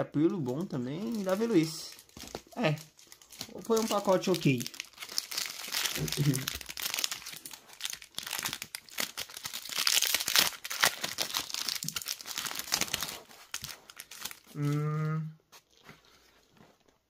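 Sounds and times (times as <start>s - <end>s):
foil wrapper crinkling and tearing: 0.2s - 14.8s.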